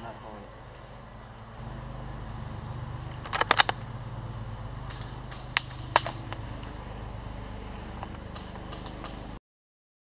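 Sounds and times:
steady low hum: 0:00.0 - 0:09.4
sharp clicks: 0:03.1 - 0:03.8, 0:04.4 - 0:06.8.

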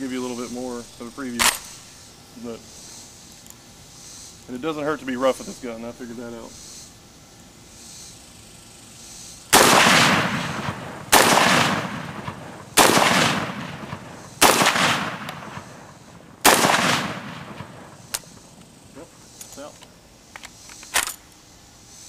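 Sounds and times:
rifle shots echoing: 0:09.5 - 0:18.5.

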